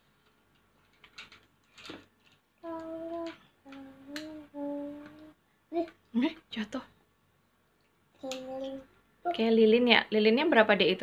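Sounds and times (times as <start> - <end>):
person humming a tune: 2.6 - 5.4.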